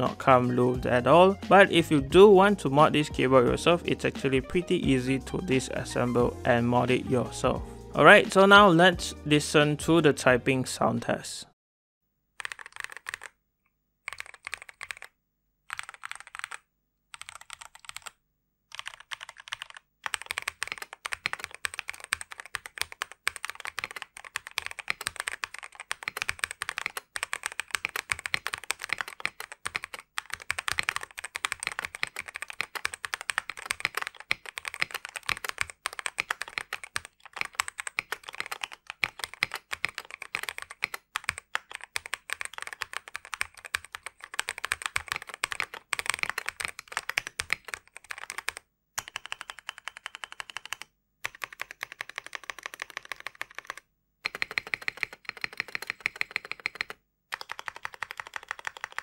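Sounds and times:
mechanical keyboard typing: 0:12.4 - 0:13.4, 0:14.0 - 0:15.1, 0:15.7 - 0:59.0.

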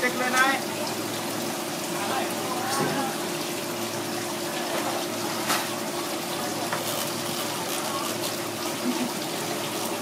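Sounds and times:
tap water splashing: 0:00.2 - 0:01.0, 0:02.6 - 0:03.2, 0:04.6 - 0:05.8, 0:06.6 - 0:10.0.

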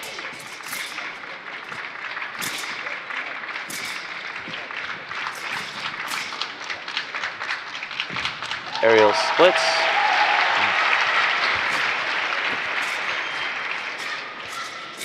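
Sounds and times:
crowd applauding: 0:06.4 - 0:14.4.

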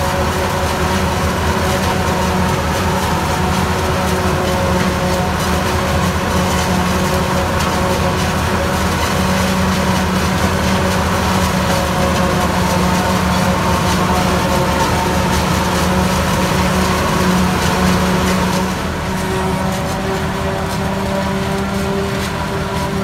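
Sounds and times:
forage harvester running: 0:00.0 - 0:23.0
tractor engine running: 0:00.0 - 0:23.0.

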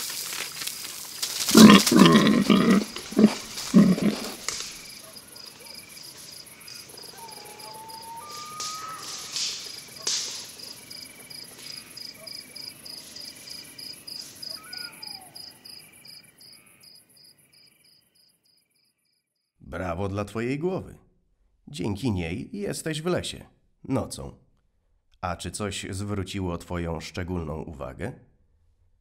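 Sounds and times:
loud crunching rustles: 0:00.0 - 0:07.0, 0:08.2 - 0:11.9
crickets chirping: 0:00.0 - 0:19.2.

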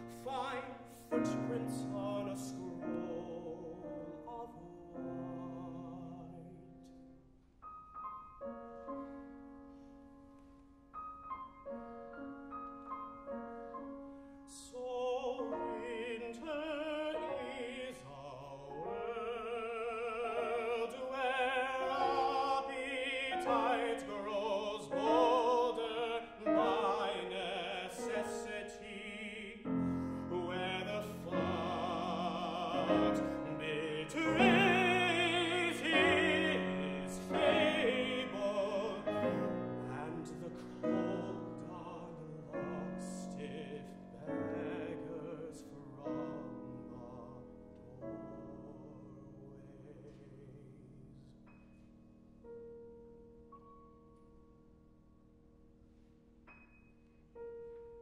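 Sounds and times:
grand piano: 0:00.0 - 0:58.0
tenor singing with vibrato: 0:14.5 - 0:50.6.

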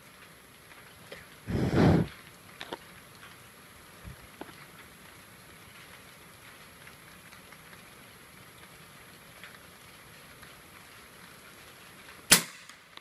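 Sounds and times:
steady rain: 0:00.0 - 0:13.0
air rifle shot: 0:12.3 - 0:12.7.

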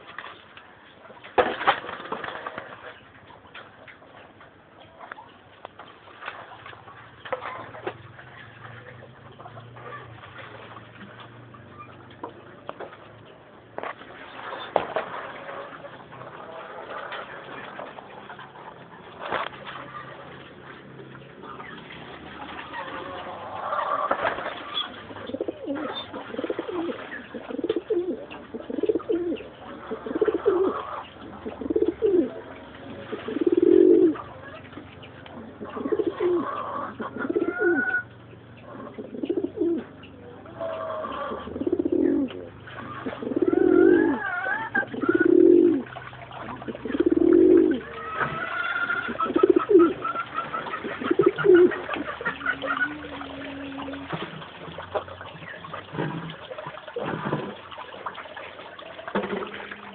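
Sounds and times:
pigeons cooing: 0:14.4 - 0:59.9.

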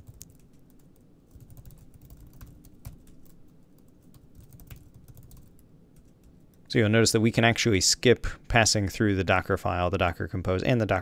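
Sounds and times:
keyboard typing: 0:00.0 - 0:06.6.

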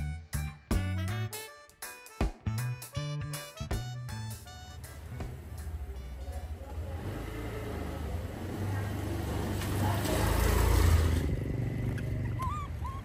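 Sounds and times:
scooter engine passing by: 0:05.0 - 0:13.0.

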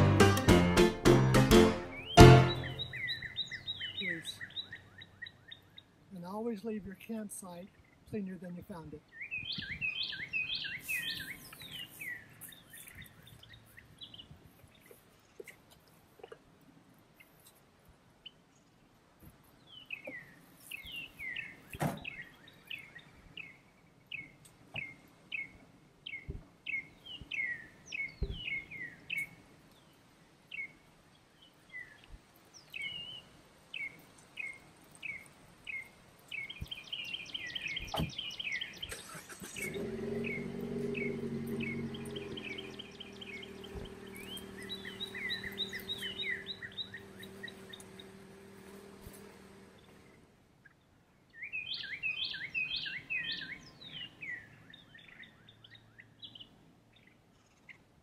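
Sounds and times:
birds chirping: 0:00.0 - 0:16.4, 0:18.2 - 0:57.9
car door and tailgate shutting: 0:37.8 - 0:38.2
car engine running: 0:39.0 - 0:50.3.

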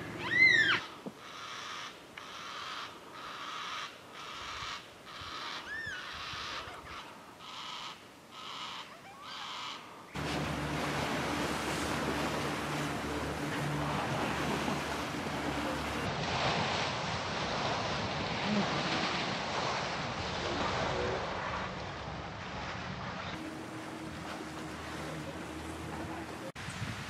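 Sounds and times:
cockatoo calls: 0:00.0 - 0:09.9
water rushing and splashing: 0:10.1 - 0:21.0, 0:23.4 - 0:27.0
boat motor running: 0:10.2 - 0:16.1, 0:23.4 - 0:26.6
wind on microphone: 0:10.2 - 0:27.0.

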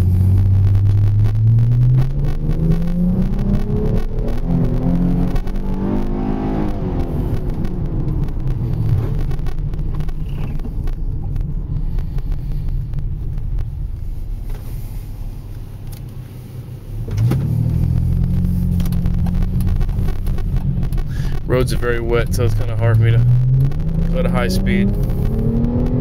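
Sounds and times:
car engine and exhaust: 0:00.0 - 0:26.0.

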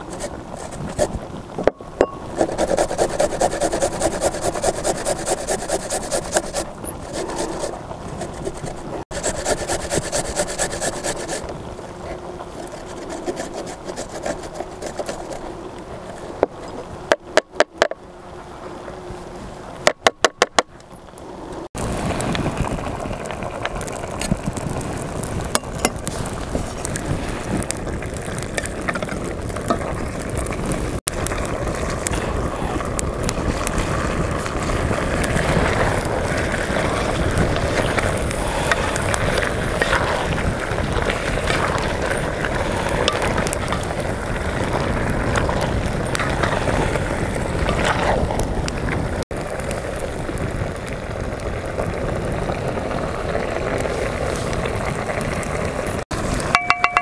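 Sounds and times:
box grater rasping: 0:02.3 - 0:11.4, 0:12.6 - 0:15.4
wooden spoon clicks and scrapes: 0:02.3 - 0:11.4, 0:12.6 - 0:15.5.

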